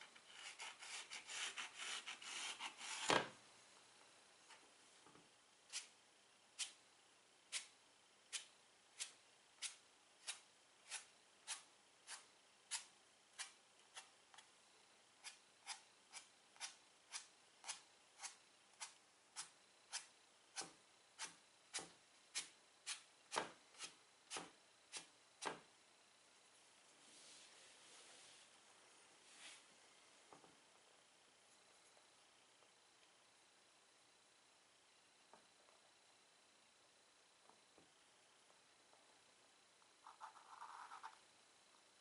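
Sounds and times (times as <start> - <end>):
chalk scratching on chalkboard: 0.3 - 3.1.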